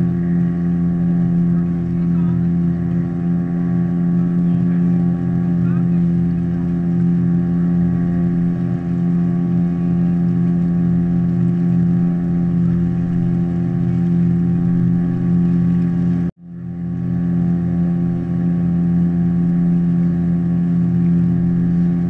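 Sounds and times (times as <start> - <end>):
boat motor running: 0.0 - 22.0.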